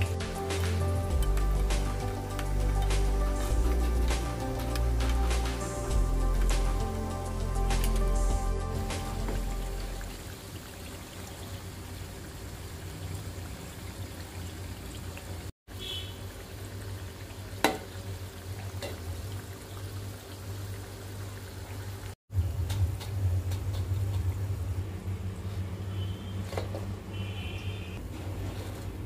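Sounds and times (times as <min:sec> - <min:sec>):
low hum: 0:00.0 - 0:10.3.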